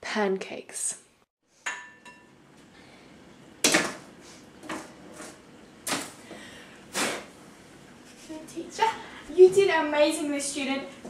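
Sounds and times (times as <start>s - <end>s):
utensils and bowl clunking: 1.6s - 2.3s.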